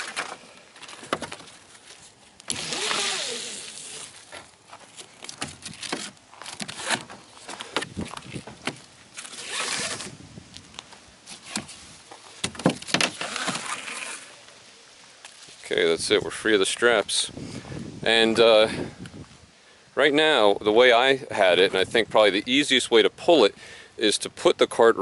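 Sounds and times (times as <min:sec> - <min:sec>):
webbing rasping through buckles: 0:02.5 - 0:04.3, 0:05.2 - 0:10.2, 0:12.4 - 0:14.4.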